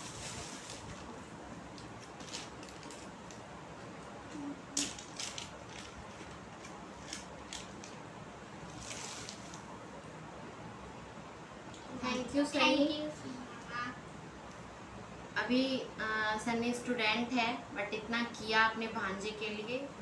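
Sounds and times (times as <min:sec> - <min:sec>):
gift wrapping rustling and crinkling: 0:00.0 - 0:03.5, 0:04.8 - 0:08.0, 0:08.6 - 0:09.7
faint steady hiss: 0:00.0 - 0:20.0.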